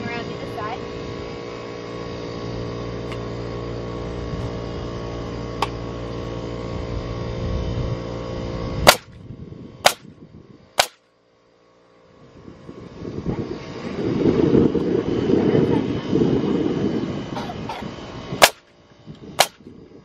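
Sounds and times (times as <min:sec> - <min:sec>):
steady hum: 0:00.0 - 0:20.0
pneumatic nail gun firing: 0:08.8 - 0:09.2, 0:09.8 - 0:10.1, 0:10.8 - 0:11.1, 0:18.4 - 0:19.7.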